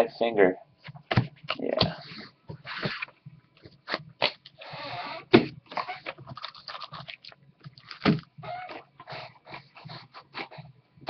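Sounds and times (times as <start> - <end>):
wrapper crinkling and tearing: 5.9 - 8.2.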